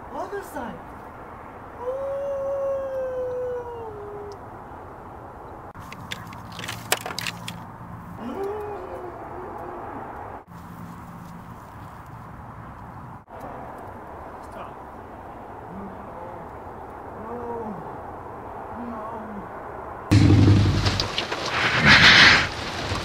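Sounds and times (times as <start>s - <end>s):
long howl: 1.8s - 4.4s
low hum: 20.1s - 23.0s.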